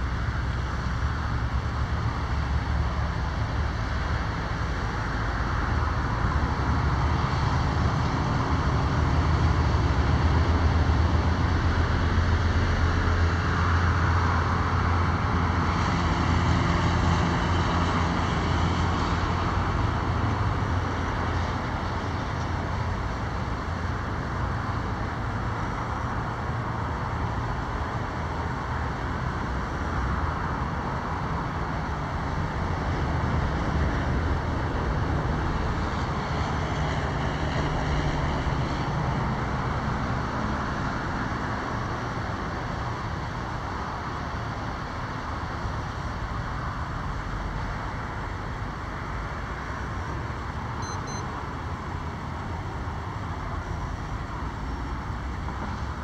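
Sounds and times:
road traffic hum: 0:00.0 - 0:56.0.

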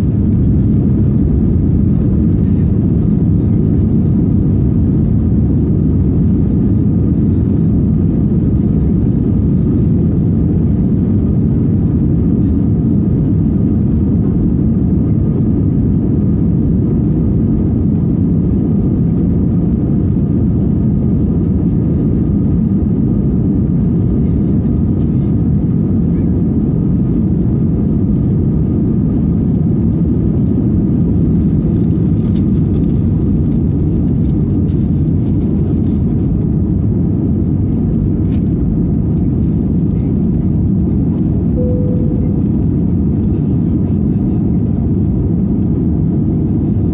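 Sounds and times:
airliner engines droning in cabin: 0:00.0 - 0:46.9
faint steady whine: 0:39.2 - 0:45.5.

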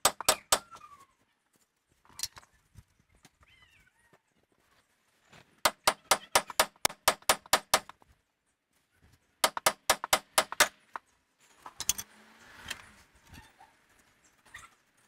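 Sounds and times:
hammer tapping on metal: 0:05.7 - 0:07.9, 0:09.4 - 0:10.8.

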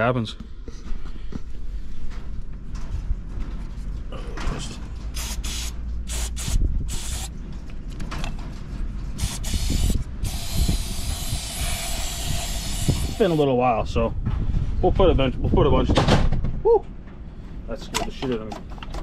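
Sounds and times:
aerosol can spraying: 0:05.2 - 0:07.3, 0:09.2 - 0:13.4.

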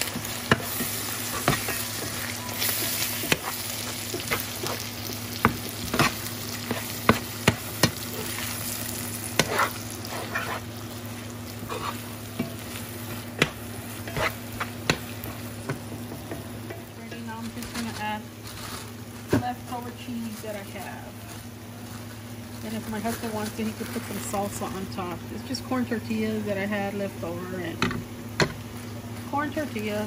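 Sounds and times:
spatula scraping pan: 0:00.0 - 0:10.8, 0:11.6 - 0:15.5
food sizzling in frying pan: 0:00.0 - 0:30.0.

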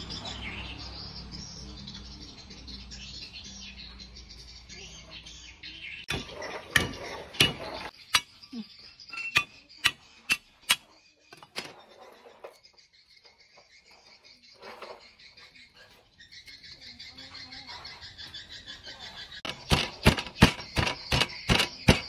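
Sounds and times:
utensils and dishes clinking: 0:06.1 - 0:12.6.

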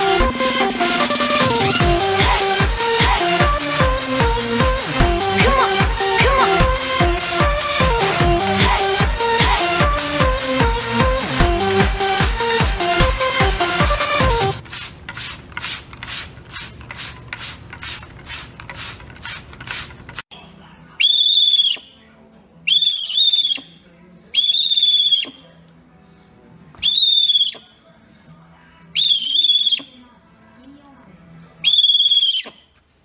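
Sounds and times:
rhythmic swishing: 0:00.0 - 0:14.6
owl whistling squeals: 0:21.0 - 0:22.0, 0:22.7 - 0:23.8, 0:24.4 - 0:25.4, 0:26.8 - 0:27.8, 0:29.0 - 0:30.0, 0:31.6 - 0:32.7.

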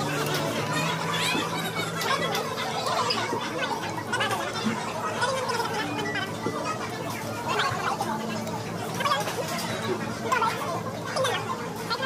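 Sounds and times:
indistinct diner chatter: 0:00.0 - 0:12.0.

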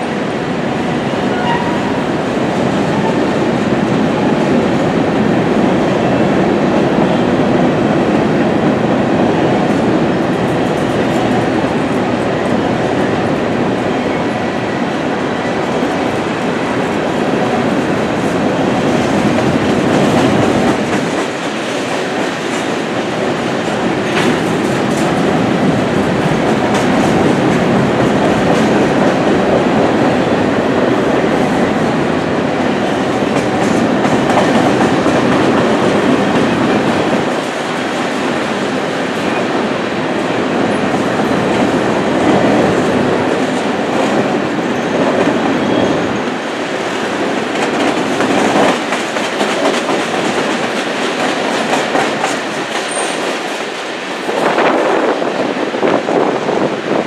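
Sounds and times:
wheels clacking over rail joints: 0:40.7 - 0:54.6.

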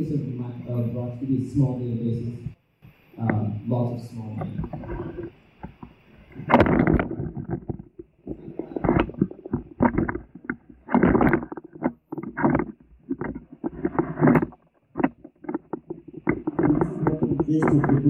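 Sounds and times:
muffled indistinct speech: 0:00.0 - 0:02.6, 0:03.2 - 0:05.2, 0:16.4 - 0:18.0.

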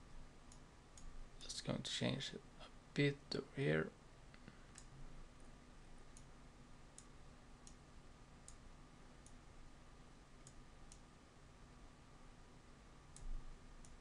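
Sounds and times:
faint steady hum: 0:00.0 - 0:14.0
computer mouse clicks: 0:04.7 - 0:04.9, 0:06.9 - 0:07.8, 0:08.4 - 0:08.6, 0:10.4 - 0:11.1, 0:13.1 - 0:14.0.

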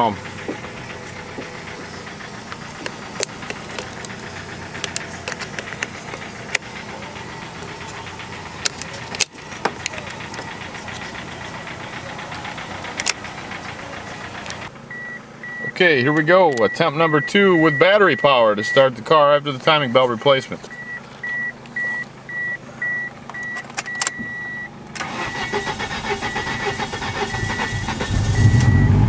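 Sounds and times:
car engine idling: 0:00.0 - 0:29.0
jumper cable clamps clicking: 0:07.5 - 0:11.2, 0:23.3 - 0:26.2.

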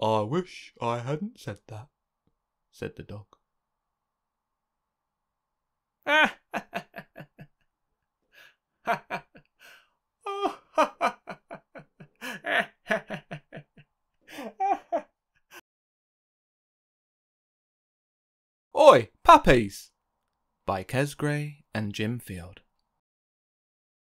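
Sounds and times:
person laughing: 0:06.1 - 0:07.6, 0:08.9 - 0:15.6.

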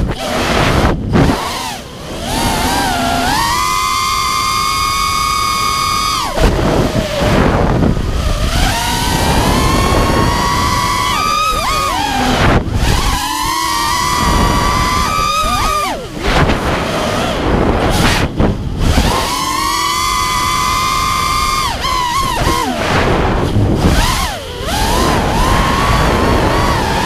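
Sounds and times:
quadcopter motors whining: 0:00.0 - 0:27.0.

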